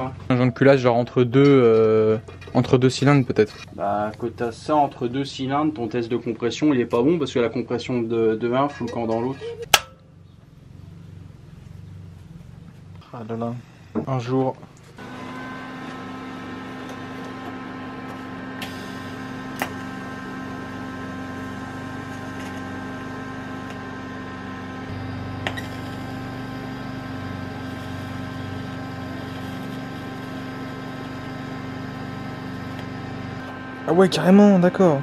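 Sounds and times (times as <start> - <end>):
welding arc humming and hissing: 14.9 - 35.0.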